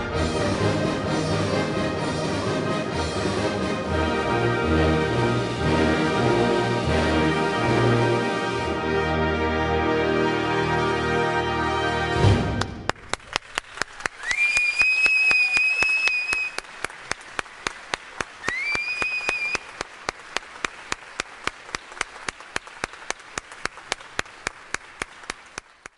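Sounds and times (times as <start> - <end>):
audience applauding: 12.6 - 25.9
close clapping: 12.6 - 25.9
person whistling: 18.4 - 19.7.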